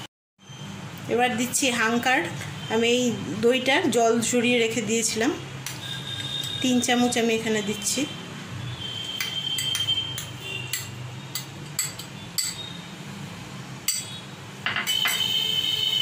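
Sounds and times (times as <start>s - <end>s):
spoon clinking against glass bowl: 9.2s - 12.8s, 13.9s - 15.4s.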